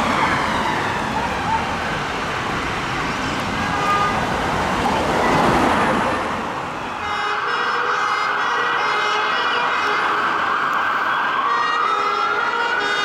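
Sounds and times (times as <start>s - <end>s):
ambulance siren wailing: 0.0s - 3.0s, 5.8s - 13.0s
city traffic noise: 0.0s - 13.0s.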